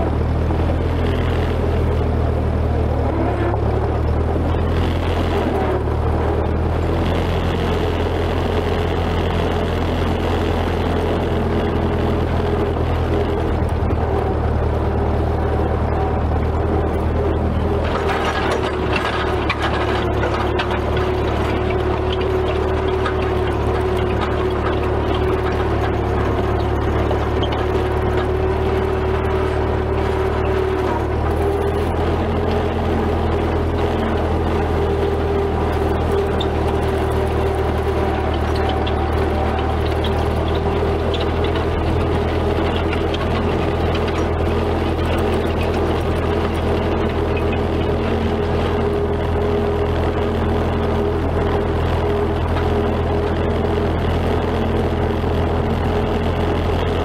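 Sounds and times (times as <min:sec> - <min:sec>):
steady whine: 0:00.0 - 0:57.0
tractor engine running: 0:00.0 - 0:57.0.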